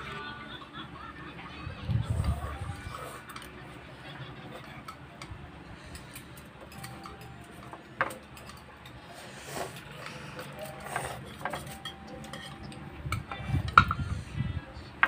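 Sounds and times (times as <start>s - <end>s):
chopsticks clicking on bowls: 4.8s - 9.0s, 9.6s - 14.0s.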